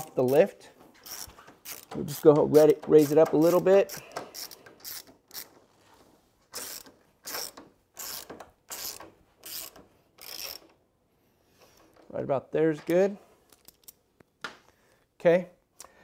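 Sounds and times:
jack being pumped: 1.0 - 10.8.

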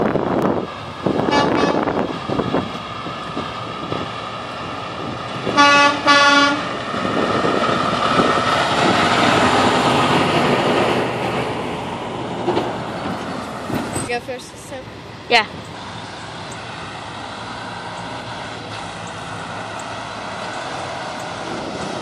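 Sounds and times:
diesel truck passing: 0.0 - 22.0
truck air horn blasts: 1.3 - 1.9, 5.6 - 6.7.

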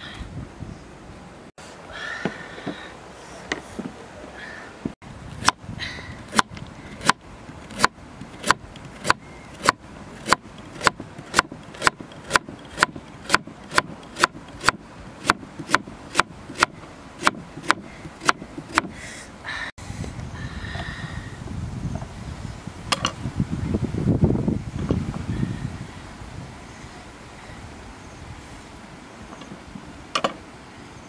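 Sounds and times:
knife chopping on wooden board: 7.8 - 18.9.

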